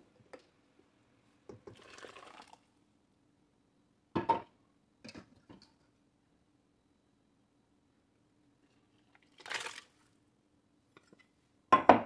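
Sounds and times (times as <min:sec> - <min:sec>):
wet paste pouring: 0:01.7 - 0:02.7.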